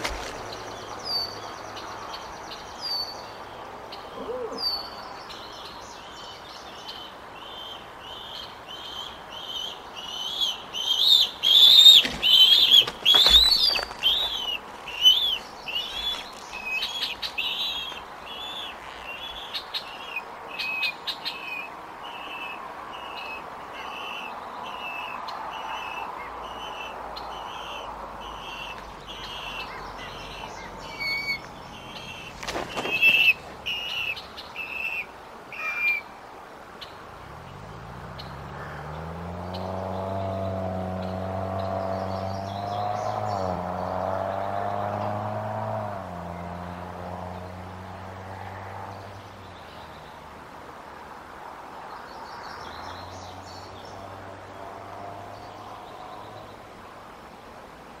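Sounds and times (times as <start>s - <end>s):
eagles chirping: 9.5s - 21.6s
wing flaps: 11.7s - 16.6s, 32.3s - 33.7s.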